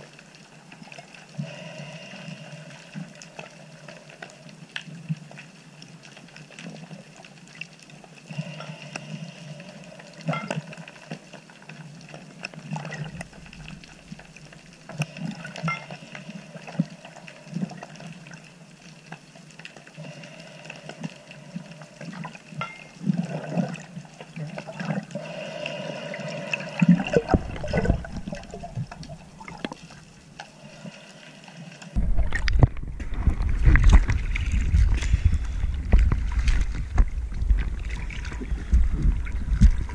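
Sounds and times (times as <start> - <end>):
muffled underwater water noise: 0.0 - 39.9
water sloshing: 20.3 - 31.0, 31.9 - 39.9.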